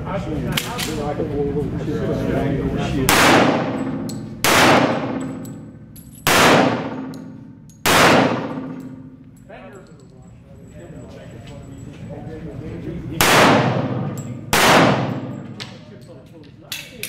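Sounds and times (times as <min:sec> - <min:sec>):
pistol shots echoing: 0:03.1 - 0:09.1, 0:13.2 - 0:15.8.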